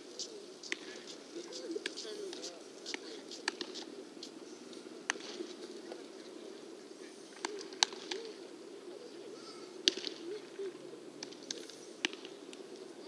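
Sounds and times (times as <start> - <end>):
baseballs smacking into gloves: 0.7 - 1.0, 1.8 - 3.9, 5.0 - 5.6, 7.4 - 8.3, 9.8 - 10.2, 11.2 - 12.7.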